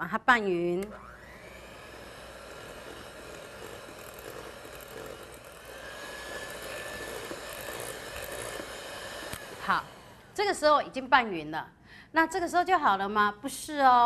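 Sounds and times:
electric mixer whirring: 0:00.8 - 0:10.6.

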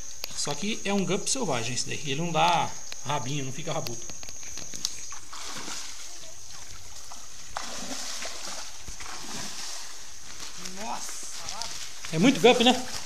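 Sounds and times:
creek water sloshing and splashing: 0:05.0 - 0:13.0.

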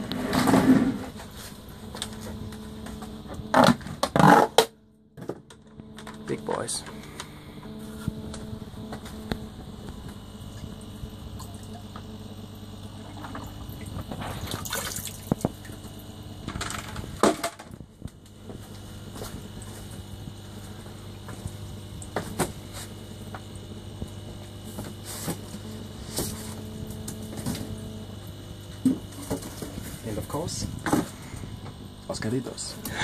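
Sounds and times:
steady low hum: 0:00.0 - 0:33.0
water pouring from bucket splashing: 0:13.8 - 0:15.6.

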